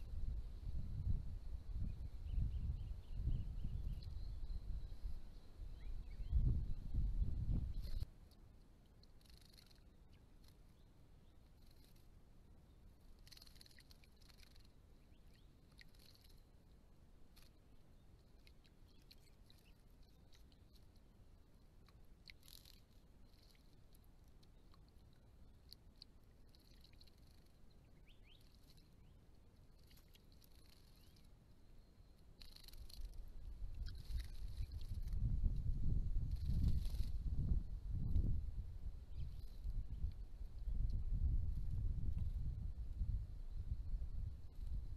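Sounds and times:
low steady hiss: 0:00.0 - 0:44.9
soft ticks: 0:08.3 - 0:10.6, 0:21.8 - 0:27.6
birds splashing in water: 0:13.2 - 0:16.5.

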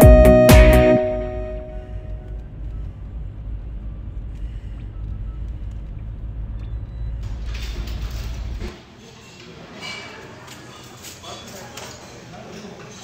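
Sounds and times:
car engine and tyre rumble: 0:01.9 - 0:08.7.

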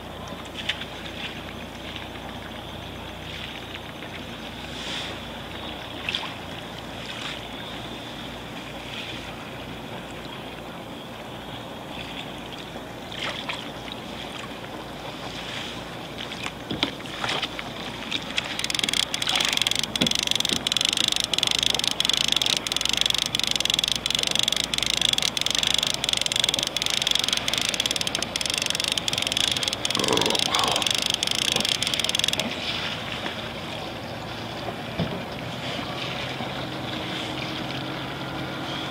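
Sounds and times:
boat diesel engine running: 0:17.7 - 0:32.6
even ticking: 0:18.2 - 0:32.5.

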